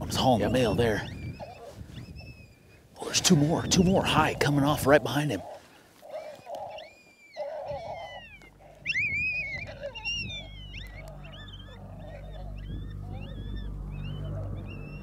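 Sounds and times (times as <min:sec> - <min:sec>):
coyote yelps from electronic caller: 0:00.5 - 0:02.6, 0:05.4 - 0:15.0
low steady hum: 0:07.8 - 0:15.0.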